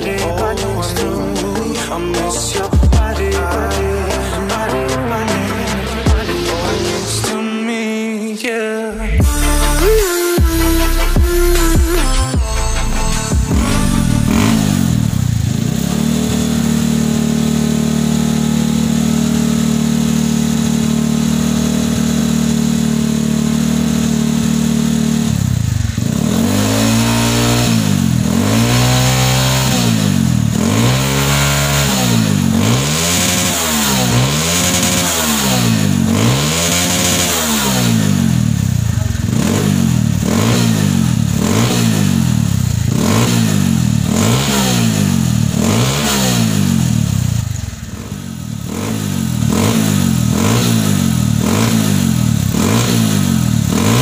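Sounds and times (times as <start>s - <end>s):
motorcycle engine idling: 0.0s - 7.2s, 9.0s - 54.0s
engine revving: 0.0s - 7.3s, 8.9s - 54.0s.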